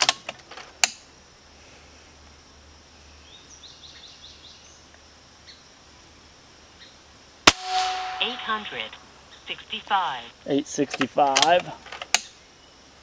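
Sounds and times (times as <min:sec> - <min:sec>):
air rifle shot: 0:07.5 - 0:08.8
short ringing tone: 0:07.7 - 0:09.0.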